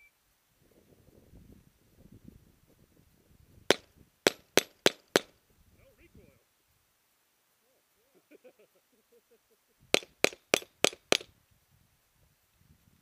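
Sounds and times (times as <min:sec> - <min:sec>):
pistol shots: 0:03.7 - 0:05.3, 0:10.0 - 0:11.3.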